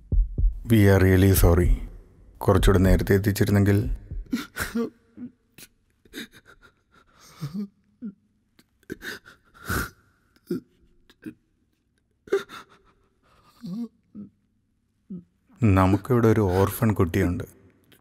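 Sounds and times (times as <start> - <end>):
elderly man gasping and sobbing: 4.2 - 14.4.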